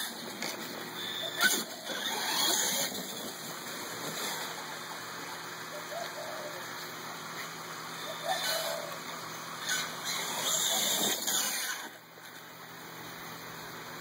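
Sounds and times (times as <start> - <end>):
toy truck motor whirring: 0.0 - 3.4, 8.3 - 12.5.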